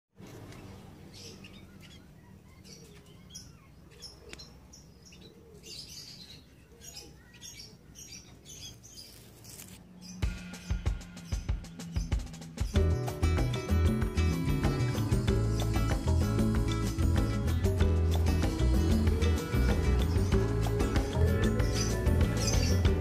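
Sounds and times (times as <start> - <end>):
small birds chirping: 0.2 - 23.0
music with heavy beats: 10.2 - 23.0.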